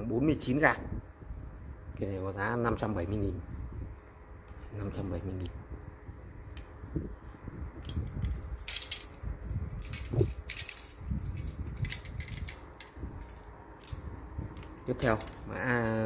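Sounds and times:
rustling handling noise: 6.6s - 16.0s
fishing rods clattering: 7.8s - 9.2s, 9.8s - 16.0s.

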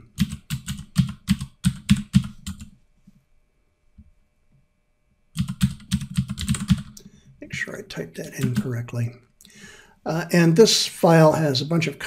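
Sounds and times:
typing on computer keyboard: 0.0s - 2.7s, 5.4s - 7.0s, 8.3s - 8.8s.

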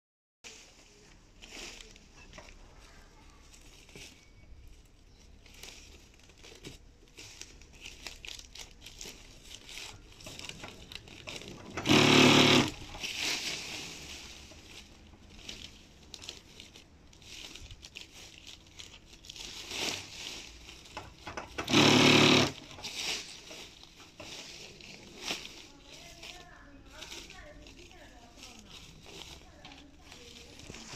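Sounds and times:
plastic netting rustling: 0.4s - 30.9s
sewing machine running: 11.3s - 13.2s, 21.4s - 23.2s.

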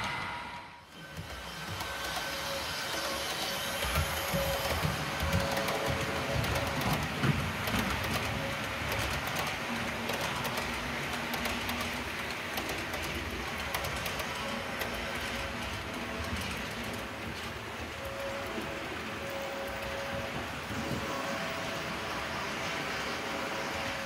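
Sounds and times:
model train rolling rumble: 0.9s - 24.0s
wheels clicking over rails: 0.9s - 24.0s.

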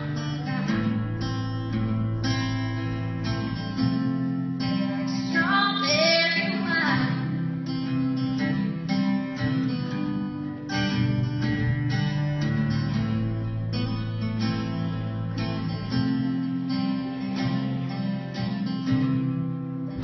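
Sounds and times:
acoustic guitar strumming chords: 0.0s - 20.0s
girl singing: 4.7s - 7.3s.

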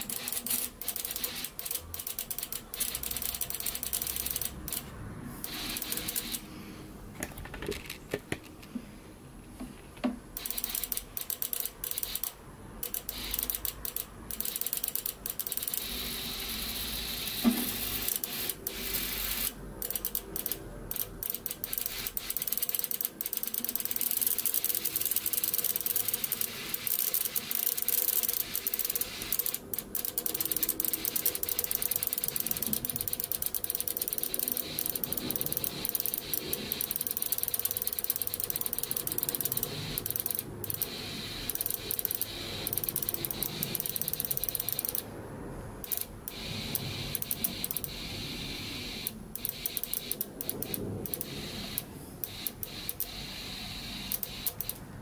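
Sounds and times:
fuel injector clicking rapidly: 0.0s - 6.5s, 10.4s - 45.1s, 45.8s - 54.8s
spray hissing into plastic cup: 5.4s - 6.5s.

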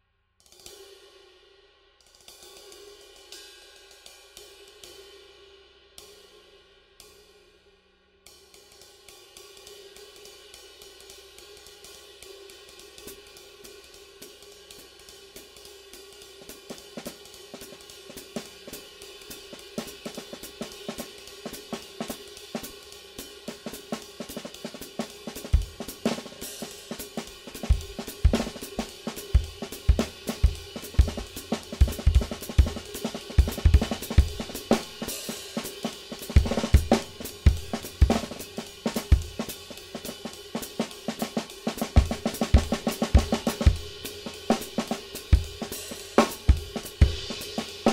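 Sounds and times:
ride cymbal wash: 8.7s - 47.9s
drum kit groove: 11.0s - 47.9s.

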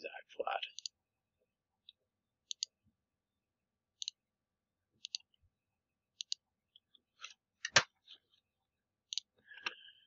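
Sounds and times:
computer mouse clicking: 1.8s - 2.8s, 4.0s - 4.2s, 5.0s - 5.4s, 6.2s - 6.4s, 9.1s - 9.8s.

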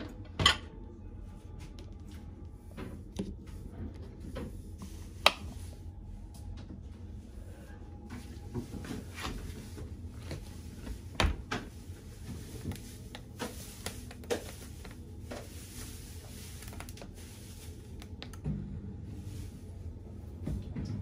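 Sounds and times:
dishwasher low hum: 0.0s - 21.0s.

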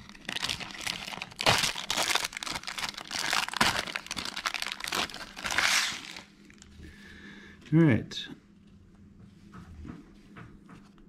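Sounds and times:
wrapper crinkling and tearing: 0.0s - 6.7s.

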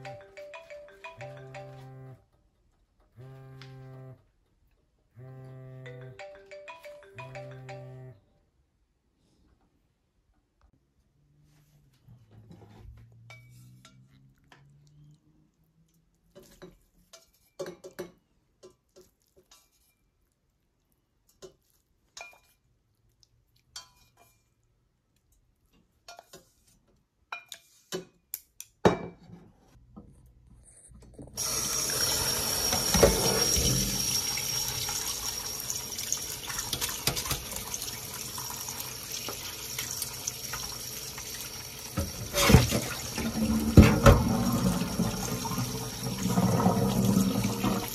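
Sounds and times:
tap water splashing: 36.2s - 38.1s, 39.1s - 47.9s.

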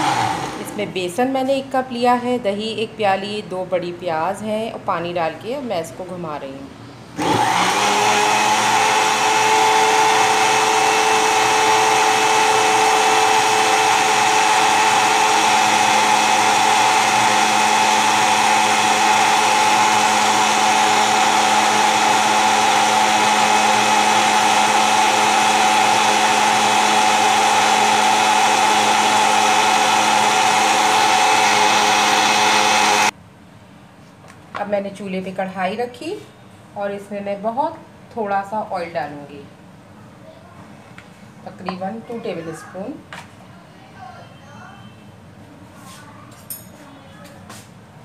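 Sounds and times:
blender motor whining: 0.0s - 0.8s, 7.2s - 33.1s.

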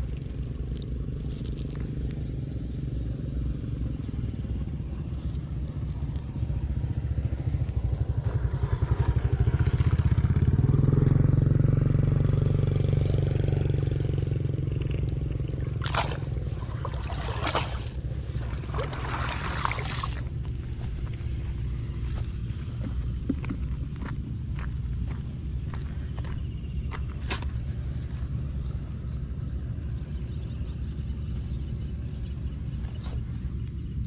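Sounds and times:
small motorcycle engine running: 0.0s - 34.0s
cast net splashing in water: 15.5s - 20.5s.

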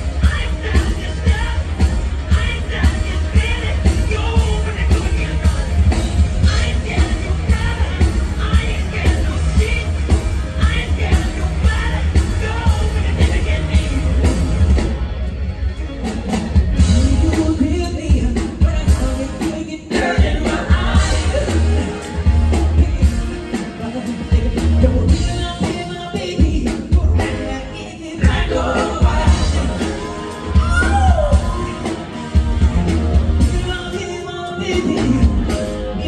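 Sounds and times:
lead singer vocals: 0.0s - 14.7s, 16.8s - 32.7s, 33.4s - 36.0s.

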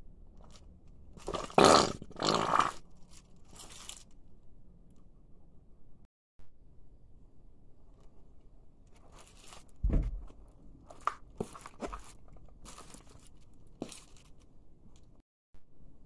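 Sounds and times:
plush toy crunching and crinkling: 0.3s - 4.2s, 8.8s - 15.2s
heavy thump on hard floor: 9.8s - 10.3s.

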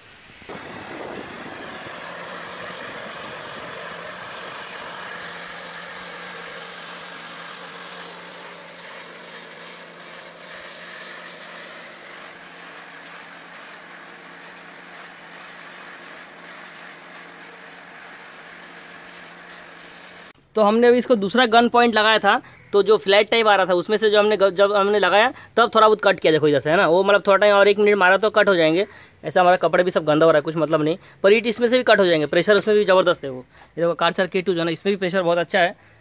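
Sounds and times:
water spray hissing: 0.0s - 20.4s
pressure washer motor hum: 0.3s - 20.4s.

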